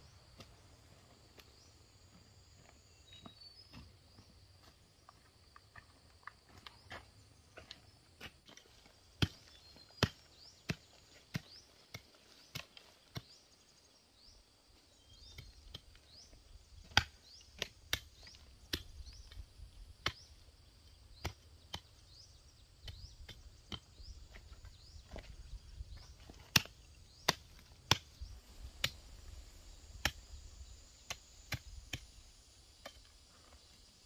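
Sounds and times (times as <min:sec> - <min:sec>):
hand tool chopping strikes: 0:26.4 - 0:28.1.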